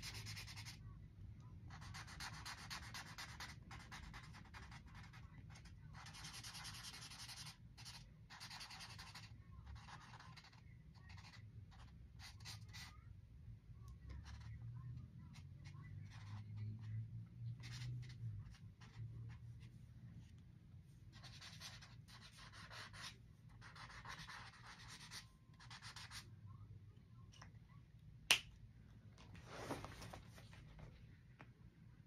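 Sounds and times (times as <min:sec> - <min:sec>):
low steady hum: 0:00.0 - 0:32.0
marker strokes on paper: 0:17.5 - 0:26.2.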